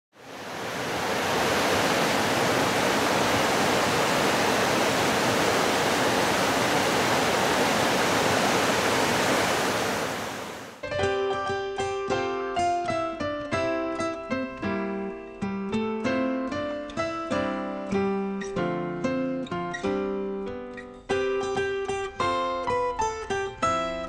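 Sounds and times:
river rapids rushing: 0:00.2 - 0:10.8.

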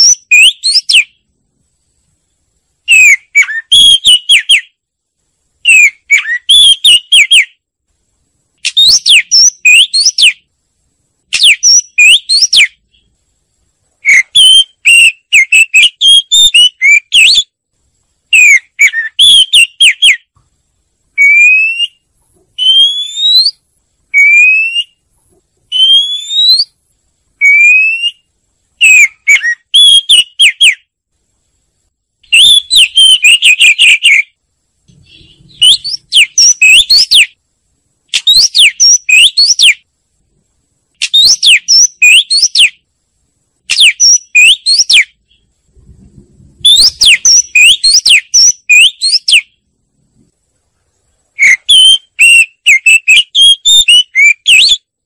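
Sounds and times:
bird singing whistled notes: 0:00.0 - 0:01.2, 0:02.9 - 0:04.8, 0:05.6 - 0:07.6, 0:08.6 - 0:10.5, 0:11.3 - 0:13.1, 0:14.1 - 0:17.6, 0:18.3 - 0:20.3, 0:21.2 - 0:22.0, 0:22.6 - 0:23.6, 0:24.2 - 0:25.0, 0:25.7 - 0:26.8, 0:27.4 - 0:30.9, 0:32.3 - 0:34.3, 0:34.9 - 0:37.4, 0:38.1 - 0:39.9, 0:41.0 - 0:42.8, 0:43.7 - 0:45.5, 0:46.6 - 0:49.6, 0:51.4 - 0:54.9.

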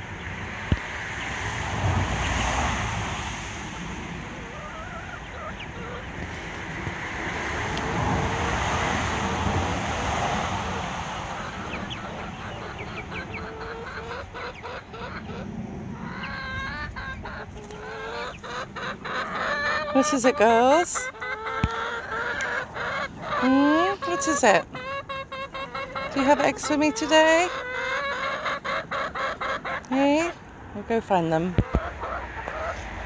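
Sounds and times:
steady rushing noise: 0:00.0 - 0:04.5
chickens clucking: 0:03.7 - 0:33.0.

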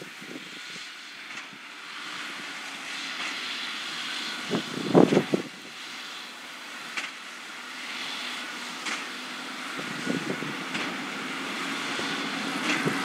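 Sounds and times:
tractor engine drone: 0:00.0 - 0:13.0.

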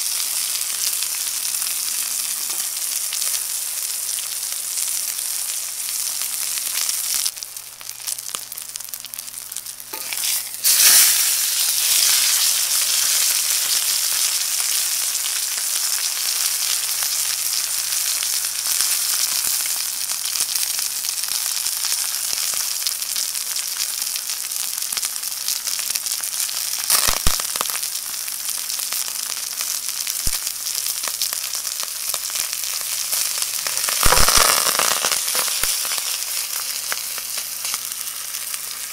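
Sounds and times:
steak sizzling in a pan: 0:00.0 - 0:38.9
fat crackling and spitting: 0:33.6 - 0:36.4.

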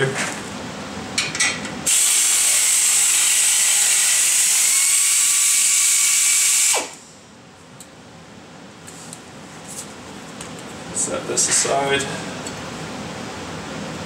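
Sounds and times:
air ratchet hissing and whining: 0:01.9 - 0:07.1.

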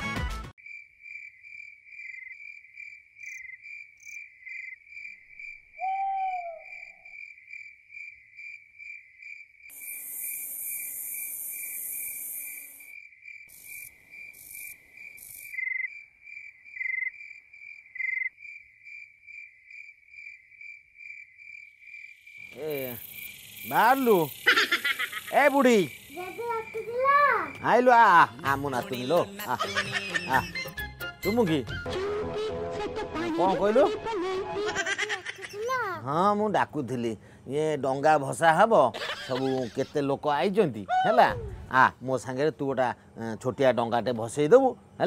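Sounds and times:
crickets chirping: 0:00.6 - 0:30.6
short hooting call: 0:05.8 - 0:07.0.

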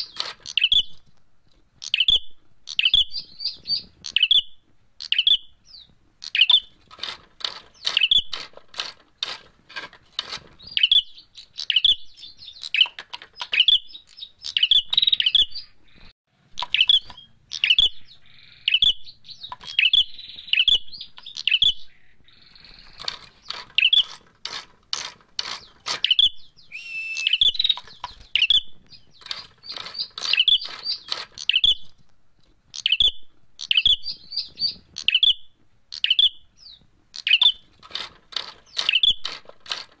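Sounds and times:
bird sharp rapid chirps: 0:00.0 - 0:01.1, 0:01.8 - 0:09.5, 0:10.2 - 0:32.0, 0:32.7 - 0:40.0
wing flutters against cage bars: 0:06.6 - 0:10.9, 0:22.5 - 0:26.3, 0:29.1 - 0:31.6, 0:37.4 - 0:40.0.

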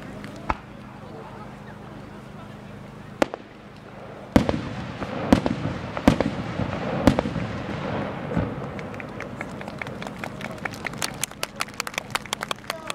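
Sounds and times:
rolling echo rumbling: 0:00.0 - 0:12.9
fireworks bursting with sharp bangs: 0:00.4 - 0:00.7, 0:03.2 - 0:10.3.

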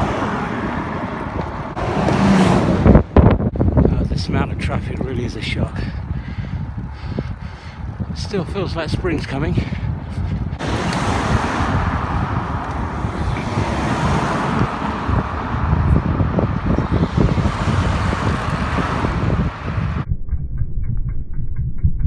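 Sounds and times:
car passing: 0:00.0 - 0:03.6, 0:10.4 - 0:20.0
bicycle tyre and road noise: 0:00.0 - 0:20.1
wind buffeting microphone: 0:00.0 - 0:22.0.

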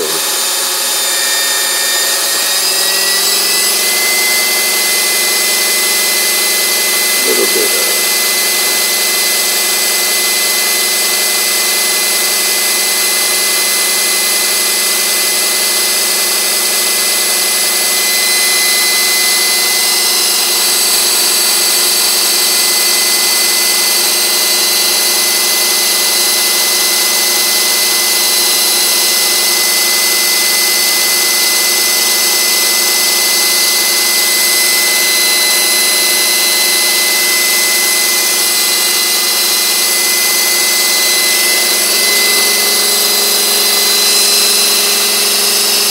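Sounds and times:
model helicopter rotor whine: 0:00.0 - 0:45.9.

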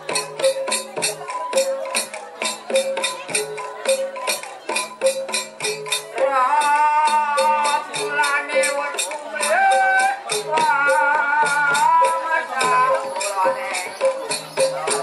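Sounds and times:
gamelan metallic percussion: 0:00.0 - 0:15.0.

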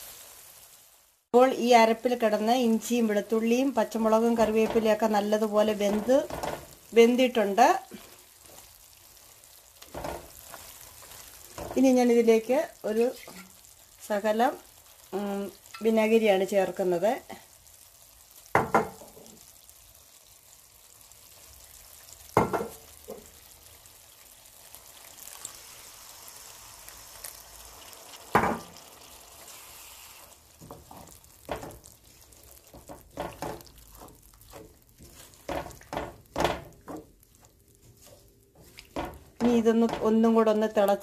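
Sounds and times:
spices sizzling in oil: 0:00.0 - 0:41.0
spatula scraping pan: 0:07.9 - 0:11.9, 0:29.4 - 0:40.4
spatula knocking against pan: 0:32.7 - 0:37.1, 0:38.9 - 0:40.2.

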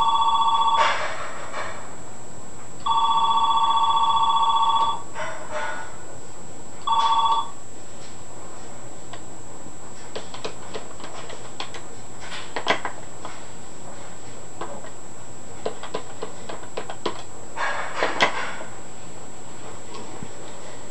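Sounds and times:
faint high whine: 0:00.0 - 0:05.2, 0:06.0 - 0:10.1.

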